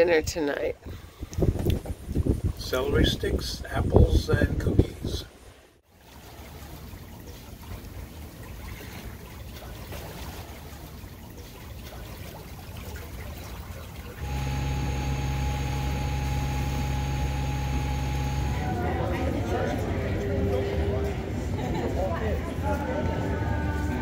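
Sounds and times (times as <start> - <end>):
water washing past hull: 5.4 - 20.2
engine hum: 14.2 - 20.8.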